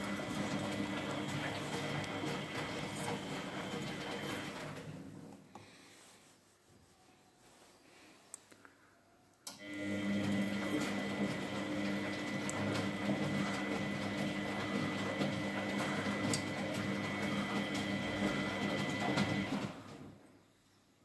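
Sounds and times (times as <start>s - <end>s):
washing machine drum turning: 0.0s - 4.9s, 9.7s - 19.9s
laundry tumbling: 0.0s - 5.3s, 9.9s - 20.2s.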